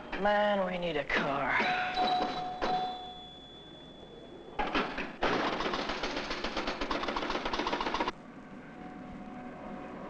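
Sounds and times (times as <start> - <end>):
pinball machine clicks: 1.1 - 3.2
pinball machine clattering: 1.1 - 3.3, 4.6 - 8.1.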